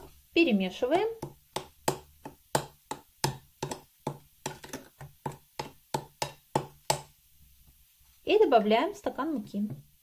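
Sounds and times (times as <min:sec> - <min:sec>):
spoon stirring batter in glass bowl: 0:01.1 - 0:07.2.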